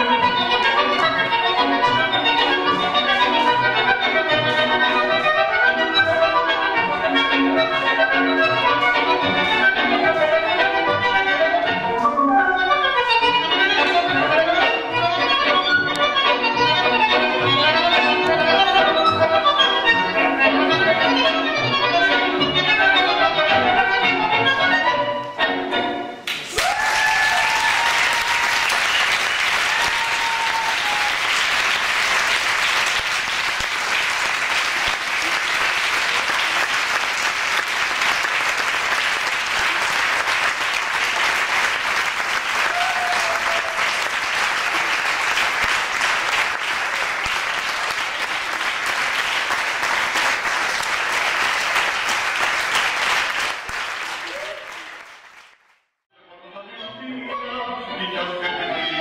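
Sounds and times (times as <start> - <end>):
audience applause: 26.3 - 55.7.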